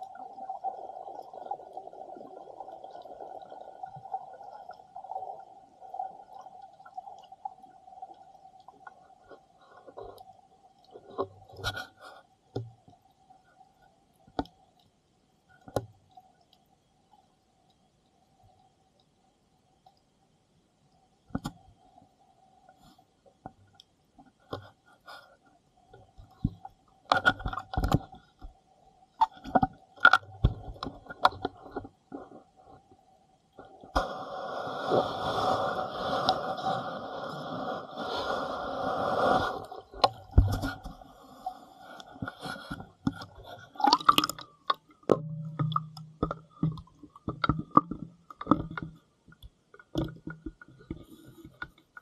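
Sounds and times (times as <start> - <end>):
sharp underwater clicks and crackles: 0.0 - 20.1, 21.2 - 35.5, 39.0 - 52.0
faint steady hum: 0.0 - 52.0
faint steady tone: 0.0 - 52.0
underwater clicks and knocks: 11.0 - 13.1, 15.6 - 16.1, 21.3 - 21.7, 25.9 - 28.6, 29.2 - 32.5, 39.9 - 41.1, 42.2 - 52.0.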